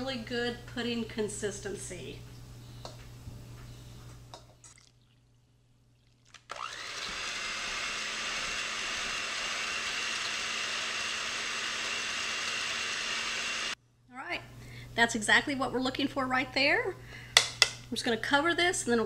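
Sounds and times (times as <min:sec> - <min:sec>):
electric hand mixer whirring: 0:06.5 - 0:13.8.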